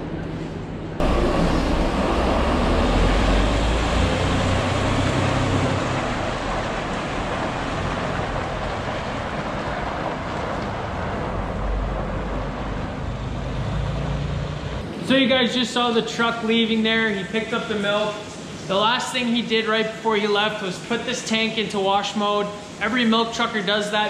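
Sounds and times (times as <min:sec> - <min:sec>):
truck diesel engine pulling away: 0:01.0 - 0:16.8.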